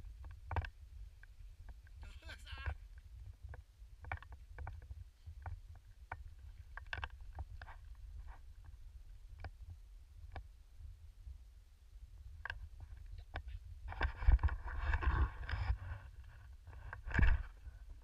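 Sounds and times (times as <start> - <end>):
wind rumble on microphone: 3.0 - 18.0.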